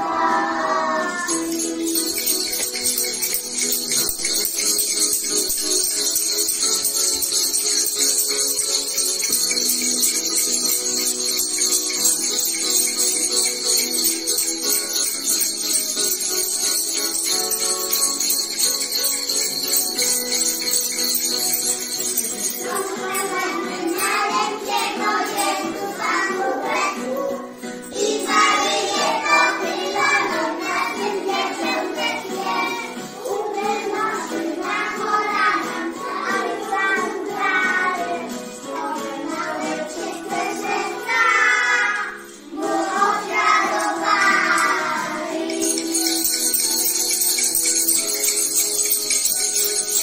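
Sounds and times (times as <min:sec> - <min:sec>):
children singing together: 0:00.0 - 0:03.0, 0:22.4 - 0:46.6.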